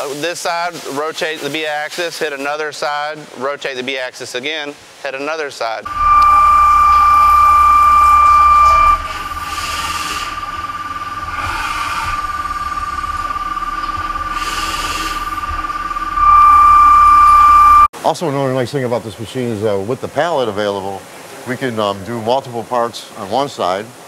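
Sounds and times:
machine high-pitched whine: 5.9s - 17.9s.

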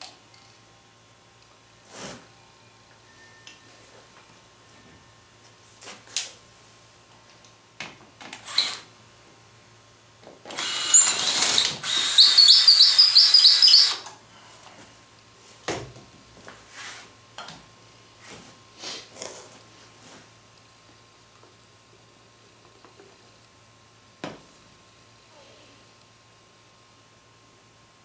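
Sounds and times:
cordless drill whining: 8.4s - 8.9s, 10.5s - 14.1s
drill chirping: 8.4s - 8.9s, 10.5s - 14.1s.

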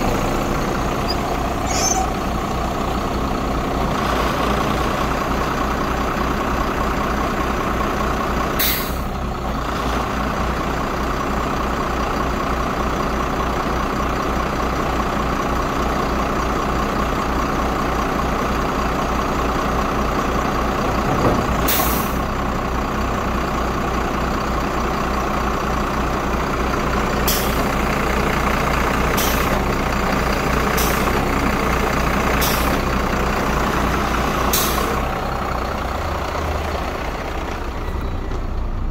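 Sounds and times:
hydraulics whirring: 0.0s - 4.0s
truck engine running: 0.0s - 38.9s.

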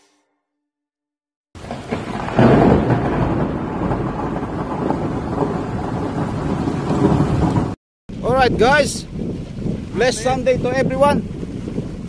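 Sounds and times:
thunder crack: 1.6s - 10.0s.

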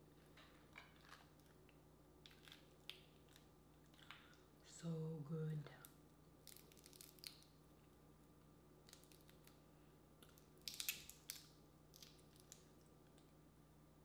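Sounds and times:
crawfish shells cracking: 0.4s - 4.4s, 5.8s - 7.6s, 8.8s - 9.6s, 10.2s - 13.3s.

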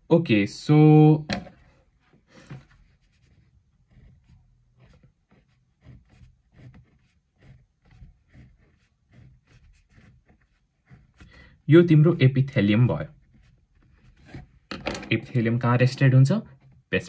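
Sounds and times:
pen scratching on paper: 2.6s - 14.6s.

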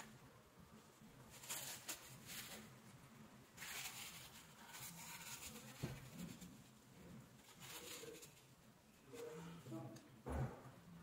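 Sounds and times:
tissue paper rubbing: 1.3s - 2.7s, 3.6s - 6.8s, 7.4s - 8.5s.

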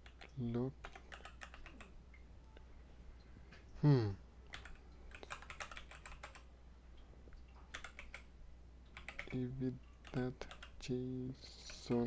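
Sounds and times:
short falling vocal sound: 3.8s - 4.2s
keyboard key clicks: 7.7s - 8.3s, 10.0s - 10.8s.

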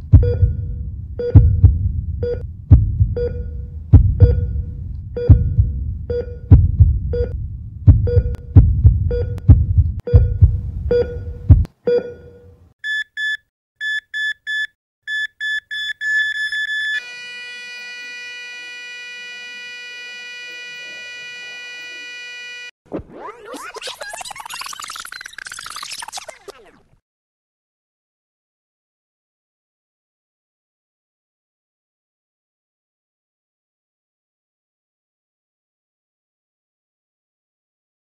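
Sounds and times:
heartbeat: 0.0s - 11.7s
heart monitor beeps: 0.2s - 2.4s, 3.2s - 3.6s, 4.2s - 4.6s, 5.2s - 8.4s, 9.1s - 17.0s
flatline tone: 17.0s - 22.7s.

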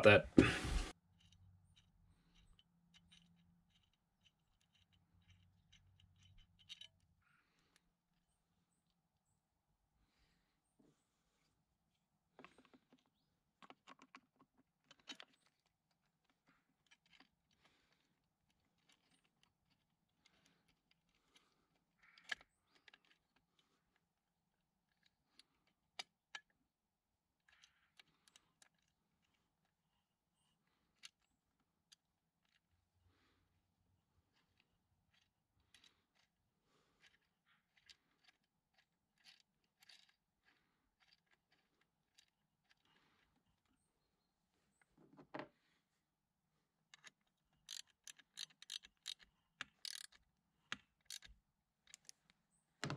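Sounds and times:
clicks of plastic and metal parts: 12.4s - 21.1s, 46.9s - 52.9s
small scrapes of parts: 34.3s - 43.9s, 46.9s - 50.2s, 50.9s - 51.3s
fingers clicking small parts: 37.0s - 42.9s, 46.9s - 52.3s.

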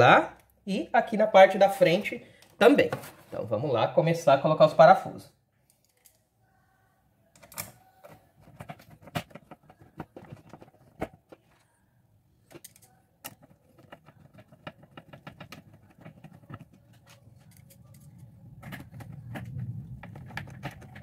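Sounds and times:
screws clicking and rattling: 12.5s - 16.2s.

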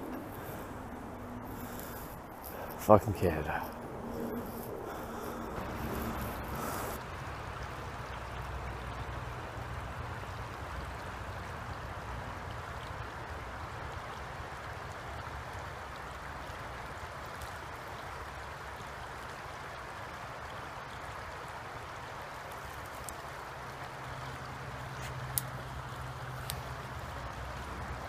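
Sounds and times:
low rumble: 0.0s - 8.0s
creek water flowing over rocks: 0.0s - 28.0s.

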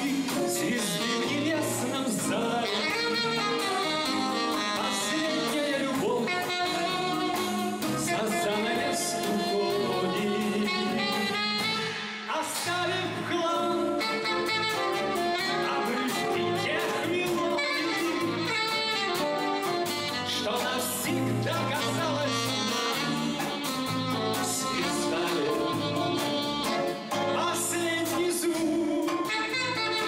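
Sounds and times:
jazz band playing a slow ballad: 0.0s - 30.0s
person singing: 0.0s - 30.0s.

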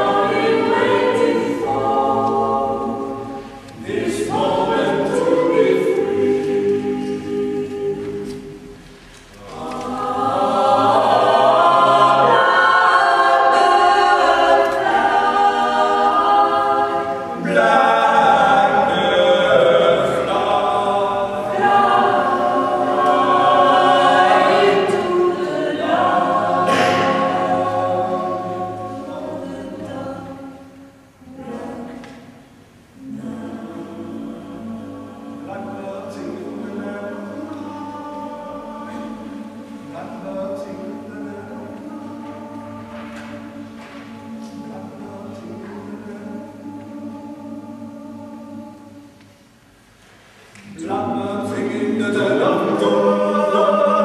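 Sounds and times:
a cappella ensemble singing: 0.0s - 54.0s.

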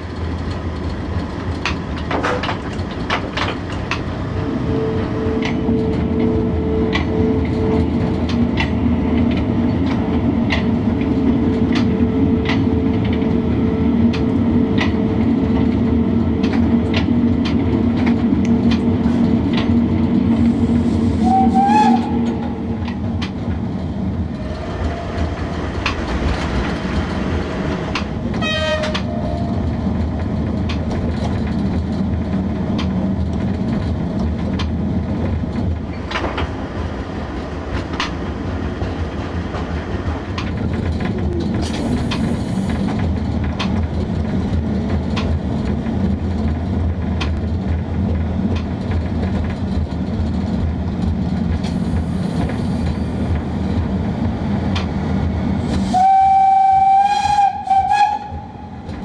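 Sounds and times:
wheels clicking over rail joints: 0.0s - 4.3s, 21.2s - 36.6s, 37.3s - 55.8s
train running noise: 0.0s - 59.0s
traction equipment hum: 0.1s - 59.0s.

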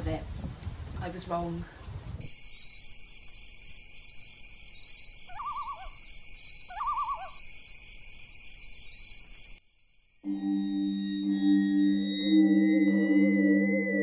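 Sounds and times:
night insects chorus: 2.2s - 10.3s
owl hoots: 5.3s - 7.9s.

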